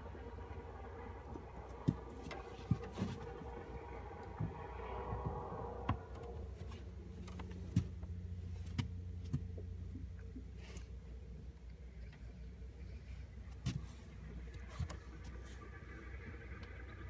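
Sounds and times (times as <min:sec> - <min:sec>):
knocks of people moving in boat: 0:00.0 - 0:10.6
steady low hum: 0:00.0 - 0:17.0.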